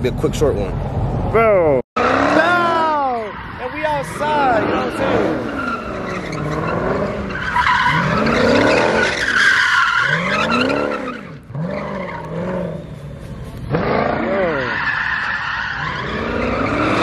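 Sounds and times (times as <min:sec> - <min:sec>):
car engine revving: 0:02.0 - 0:17.0
tyres squealing: 0:02.4 - 0:12.3.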